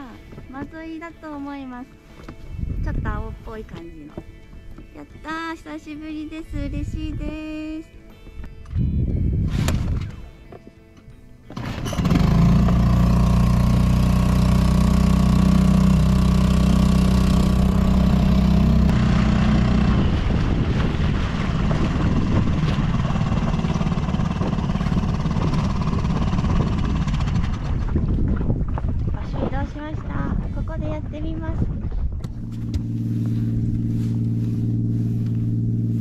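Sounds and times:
water and wind noise: 0.0 - 5.5, 11.6 - 36.0
outboard motor humming: 11.5 - 29.0, 31.6 - 36.0.

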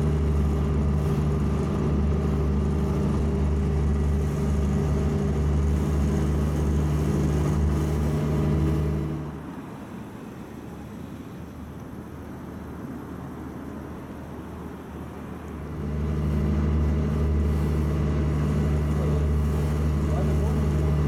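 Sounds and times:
engine running: 0.0 - 9.7, 15.2 - 21.0.

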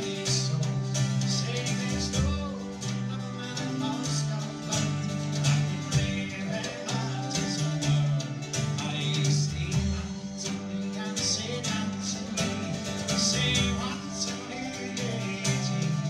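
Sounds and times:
bagpipe drone: 0.0 - 16.0
folk band playing fast tune: 0.0 - 16.0
drum beat: 3.8 - 16.0.

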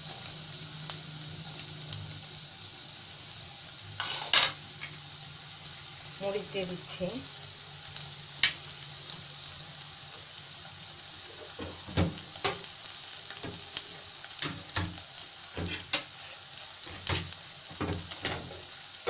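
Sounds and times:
onion sizzling in a frying pan: 0.0 - 19.0.

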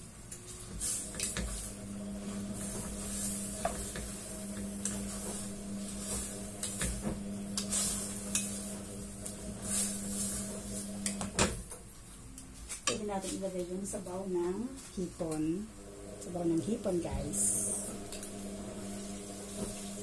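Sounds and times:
soft sizzle: 0.0 - 20.0
spatula scraping a saucepan: 7.6 - 8.7.

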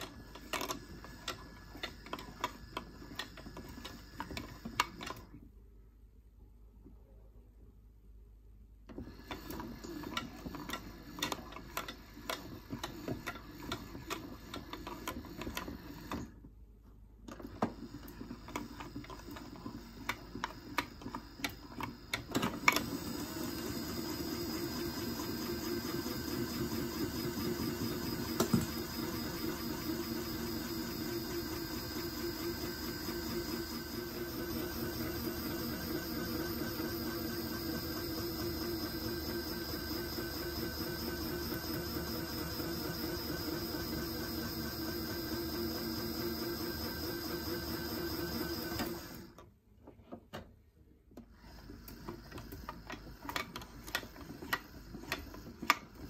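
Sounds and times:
toy washing machine motor: 0.0 - 5.3, 8.9 - 16.4, 17.3 - 49.4, 51.2 - 56.0
drum whirring spin: 17.5 - 49.4.

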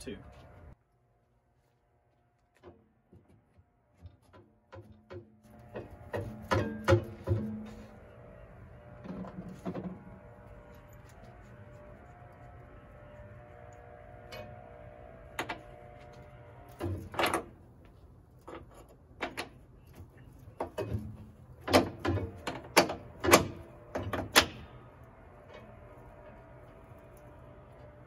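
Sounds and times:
metal clanks and knocks: 4.0 - 8.1, 8.8 - 10.9, 16.7 - 17.6, 18.4 - 24.7.

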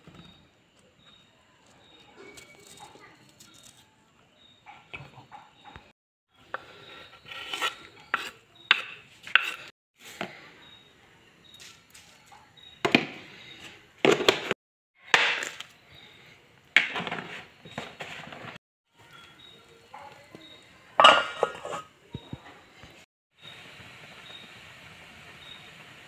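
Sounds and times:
knife on wooden chopping board: 7.2 - 9.7
utensils clinking against pan: 20.0 - 22.0.

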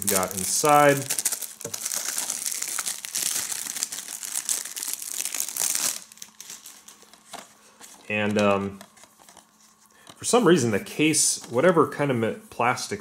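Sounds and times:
plastic wrap crinkling: 0.0 - 10.1.

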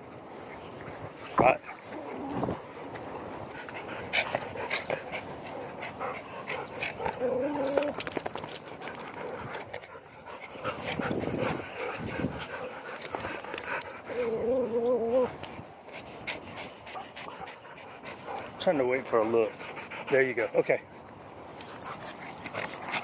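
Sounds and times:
rustling: 0.0 - 18.6
dog panting: 0.4 - 20.9, 21.6 - 23.0
dog whining: 7.0 - 8.3, 14.0 - 15.4.

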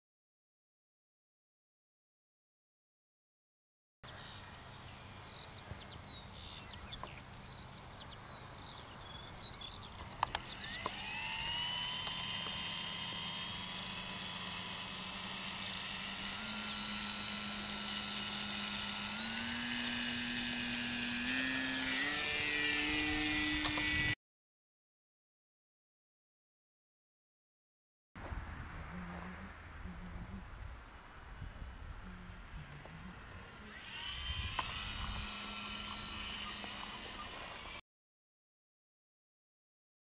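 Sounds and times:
small birds chirping: 4.1 - 11.2
electric motor and propeller whine: 4.9 - 24.2, 31.9 - 37.8.

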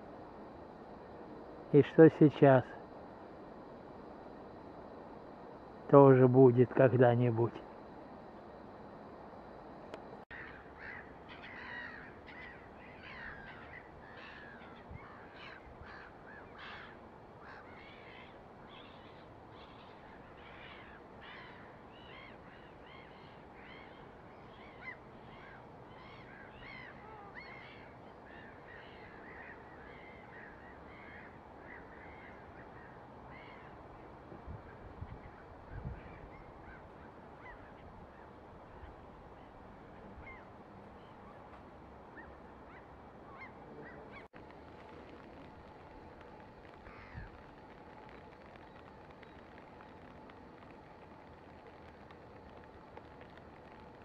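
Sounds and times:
faint steady hiss: 0.0 - 54.0
flock of birds calling: 10.3 - 33.8, 34.6 - 41.5, 42.1 - 49.5.

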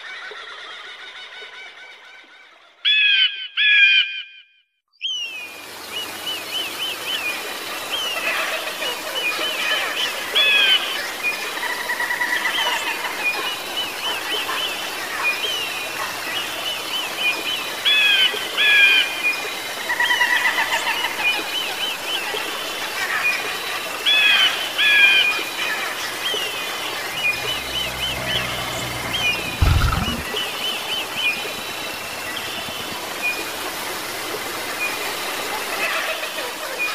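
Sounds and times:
steady outdoor hiss: 5.2 - 36.9
birds chirping and trilling: 23.6 - 31.8.

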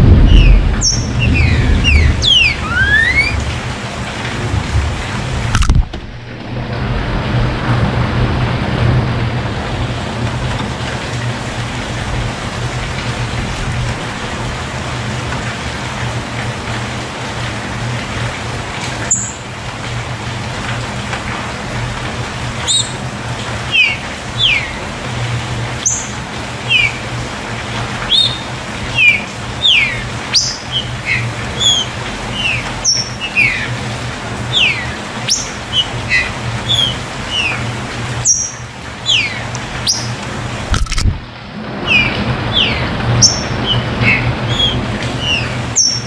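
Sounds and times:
low hum: 0.0 - 9.0
bird calling whistled notes: 0.2 - 3.5, 22.7 - 23.0.

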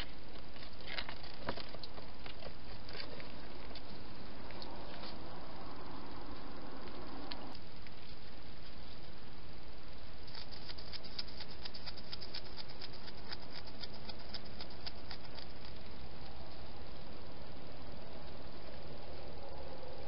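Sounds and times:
steady hiss: 2.1 - 20.0
hedgehog clicks and ticks: 10.3 - 15.9.

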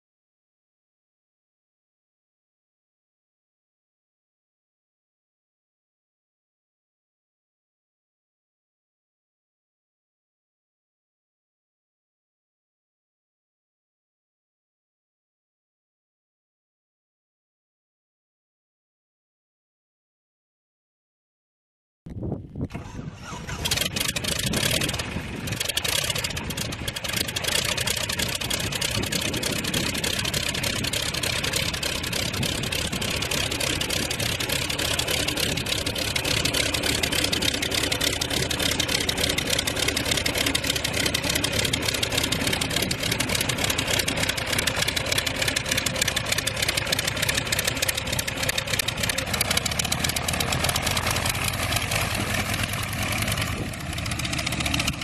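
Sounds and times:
radial aircraft engine running: 22.6 - 55.0.

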